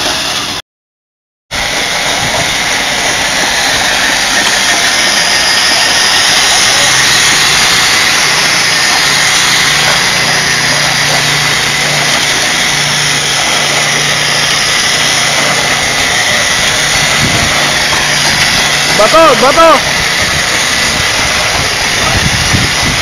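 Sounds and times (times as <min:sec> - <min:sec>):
power tool motor whine: 0:01.6 - 0:23.0.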